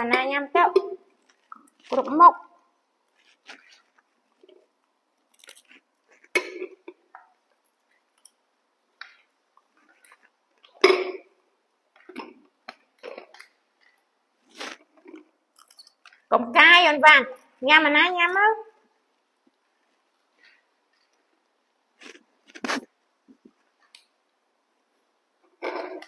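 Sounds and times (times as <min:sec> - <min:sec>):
monkeys crunching snacks: 0:03.2 - 0:06.9.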